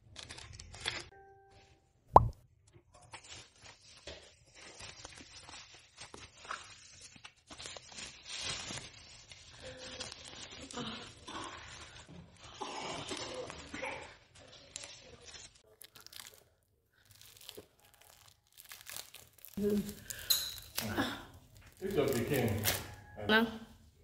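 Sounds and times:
plastic wrap crinkling and rustling: 0.0 - 1.1, 2.8 - 23.2
bubble wrap pop: 17.2 - 22.9.

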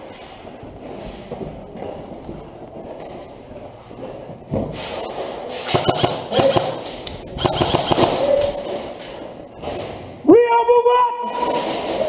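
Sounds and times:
airsoft gun rapid clicking shots: 5.7 - 8.6.

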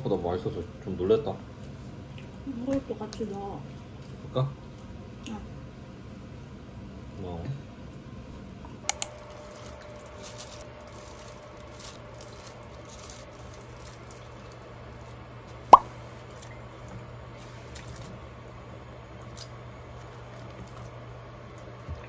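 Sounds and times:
light clicks: 8.8 - 9.2.

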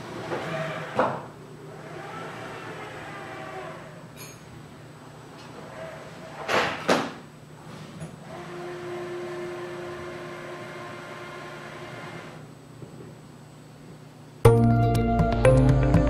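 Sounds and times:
robot arm motor hum: 0.1 - 1.0, 1.6 - 4.2.

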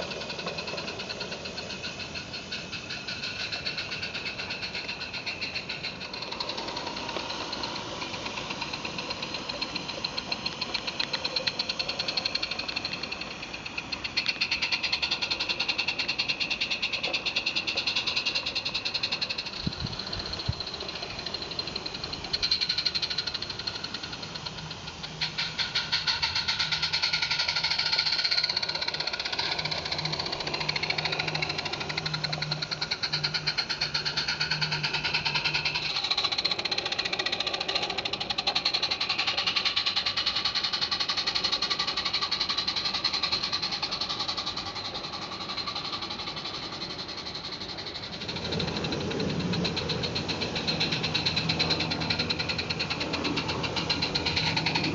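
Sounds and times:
steam locomotive chuffing: 0.0 - 54.9.

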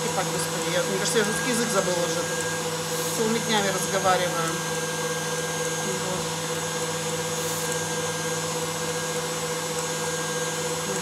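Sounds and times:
electric mixer humming: 0.0 - 11.0.

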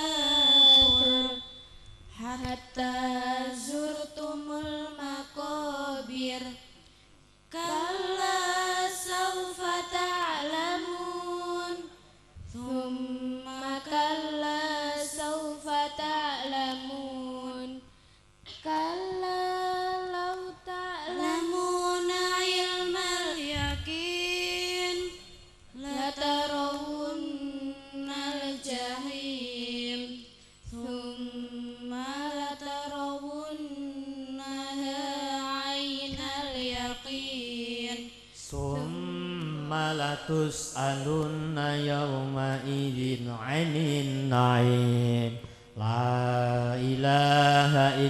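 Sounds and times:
girl chanting into a microphone: 18.5 - 38.9.

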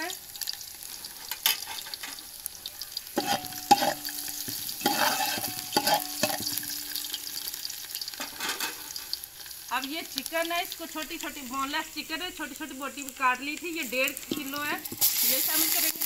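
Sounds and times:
garlic sizzling in oil: 0.0 - 16.0
metal spoon knocking on pot: 3.2 - 7.1.

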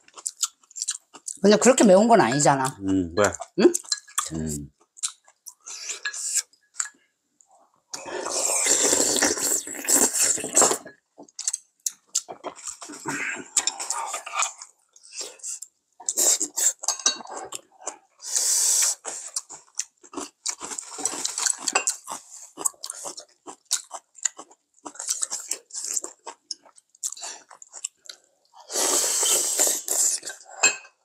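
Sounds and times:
people chewing: 0.0 - 7.0, 7.9 - 31.0
loud slurps: 8.0 - 10.8, 28.7 - 30.2.

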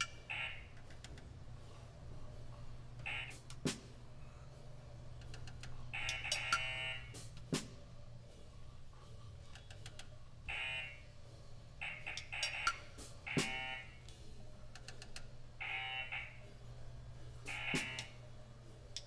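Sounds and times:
steady low hum: 0.0 - 19.0
game buzzer: 6.0 - 7.2, 11.8 - 14.0, 15.6 - 16.4, 17.5 - 18.2.

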